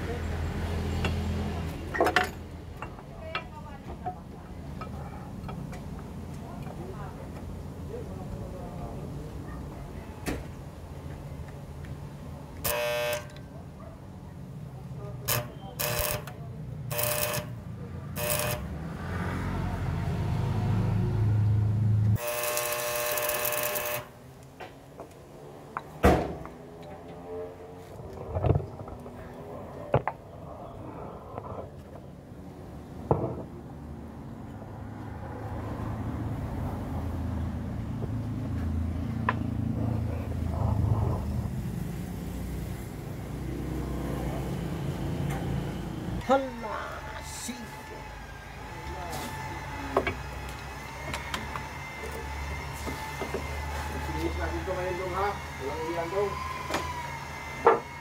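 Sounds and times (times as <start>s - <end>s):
electric arc welding buzz: 12.6s - 13.3s, 15.3s - 17.6s, 18.2s - 18.7s, 22.2s - 24.2s.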